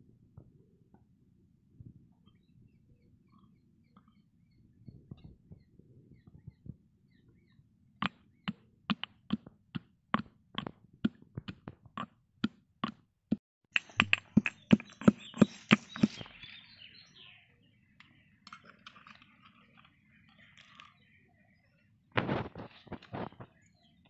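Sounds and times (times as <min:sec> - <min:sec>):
pestle pounding in stone mortar: 0:08.0 - 0:13.0, 0:13.8 - 0:16.3
spoon scraping mortar: 0:13.8 - 0:16.4.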